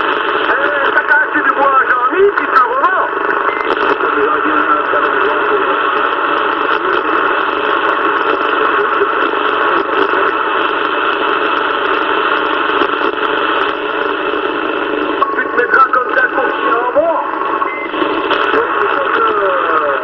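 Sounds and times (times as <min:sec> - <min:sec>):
faint radio crackles: 0:00.0 - 0:20.0
radio static hiss: 0:00.0 - 0:20.0.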